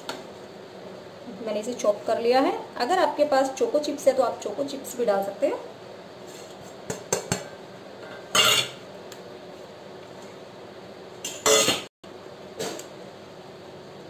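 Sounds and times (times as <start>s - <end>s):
bowl scraping: 8.0s - 8.8s.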